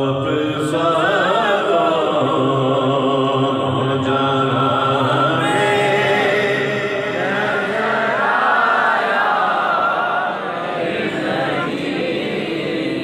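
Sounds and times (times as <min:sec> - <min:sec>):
man singing into a microphone: 0:00.0 - 0:08.4.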